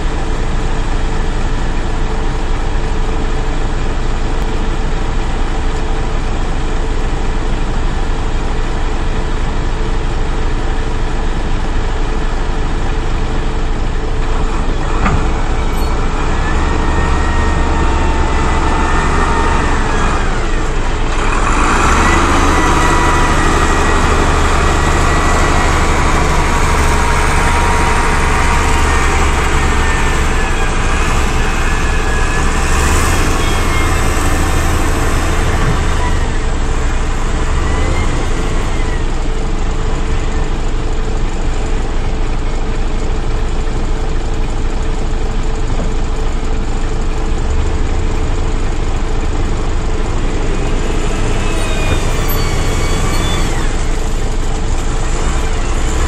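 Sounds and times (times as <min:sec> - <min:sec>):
diesel engine revving: 0:00.0 - 0:56.0
thin whine: 0:13.6 - 0:41.7, 0:48.4 - 0:56.0.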